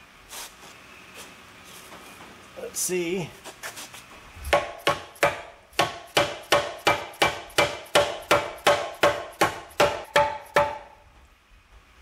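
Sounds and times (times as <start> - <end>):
mallet striking metal: 4.5 - 11.0.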